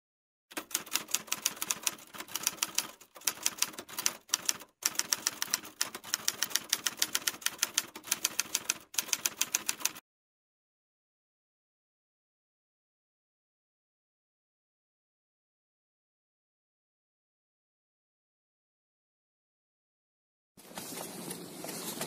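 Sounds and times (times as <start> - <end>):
rapid typewriter keystrokes: 0.5 - 10.0.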